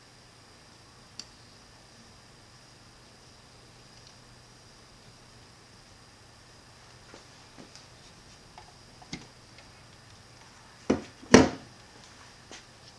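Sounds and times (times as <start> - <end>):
loud knocks: 10.9 - 11.6.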